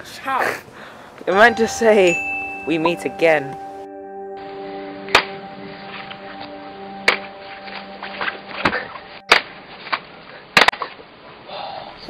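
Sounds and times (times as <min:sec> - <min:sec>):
background music steady chord: 0:01.3 - 0:10.2.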